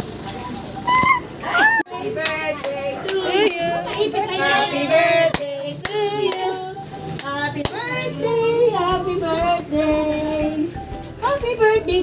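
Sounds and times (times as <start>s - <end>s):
excited high-pitched voices: 0.8s - 4.8s.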